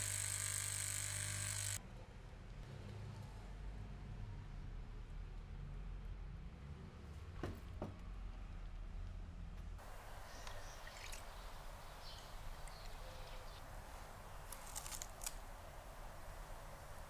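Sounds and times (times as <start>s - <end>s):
sharp clicks: 14.5s - 15.4s.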